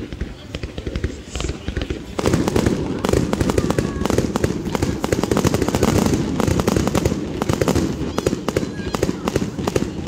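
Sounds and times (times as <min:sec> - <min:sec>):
fireworks popping and crackling: 0:00.0 - 0:10.0.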